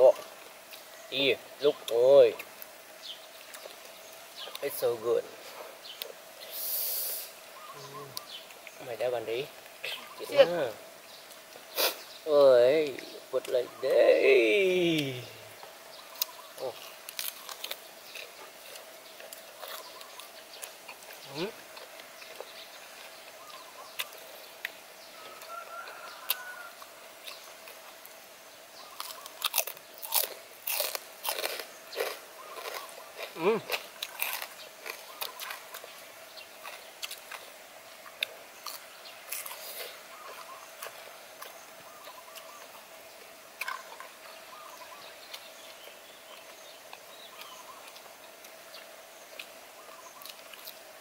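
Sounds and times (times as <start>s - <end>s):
birds chirping faintly: 0.0s - 51.0s
chewing crunchy food: 3.3s - 4.8s, 16.2s - 28.2s, 28.9s - 51.0s.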